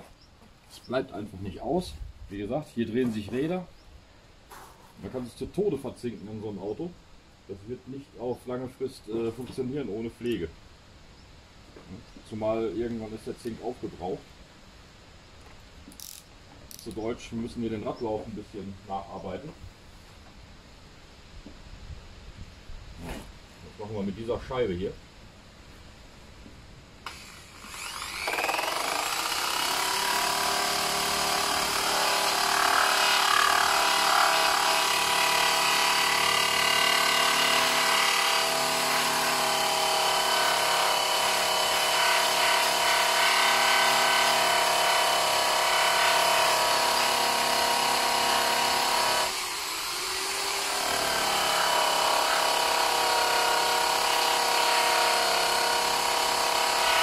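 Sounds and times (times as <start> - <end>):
drill abrading rusty metal: 27.0 - 57.0.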